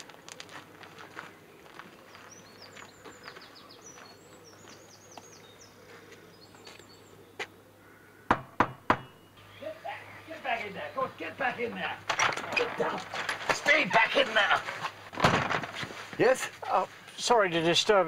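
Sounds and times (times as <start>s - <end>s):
birds chirping: 0.0s - 15.1s
knocks on a door: 8.3s - 9.1s.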